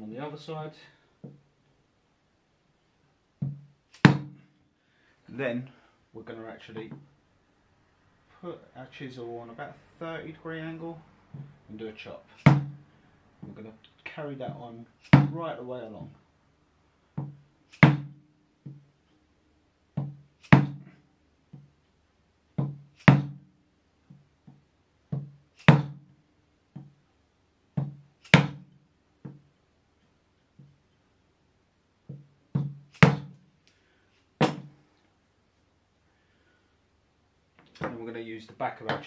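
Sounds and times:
mallet striking wood chisel: 0:03.4 - 0:04.4, 0:12.4 - 0:12.8, 0:15.0 - 0:15.4, 0:17.2 - 0:18.8, 0:19.9 - 0:20.9, 0:22.6 - 0:23.4, 0:24.1 - 0:26.0, 0:27.8 - 0:29.4, 0:32.1 - 0:33.4, 0:34.4 - 0:34.7.

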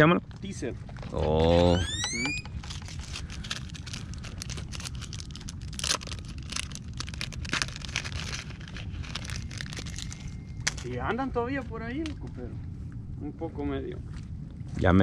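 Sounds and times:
steady low rumble: 0:00.0 - 0:15.0
plastic bag crinkling: 0:02.5 - 0:11.0.

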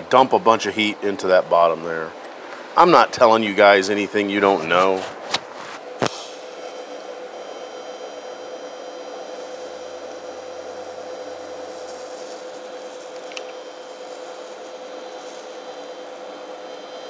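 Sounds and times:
welding arc hissing: 0:08.3 - 0:17.0.

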